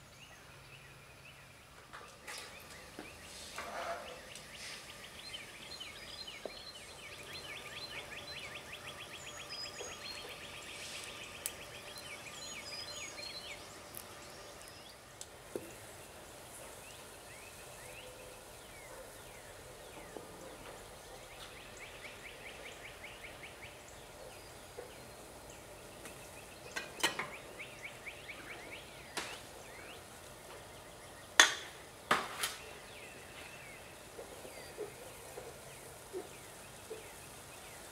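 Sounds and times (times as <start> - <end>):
bird trills and chirps: 2.0 - 15.0.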